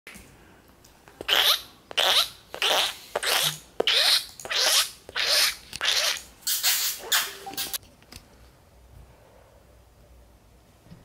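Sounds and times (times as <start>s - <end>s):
person making squeaky hissing calls: 1.3s - 7.4s.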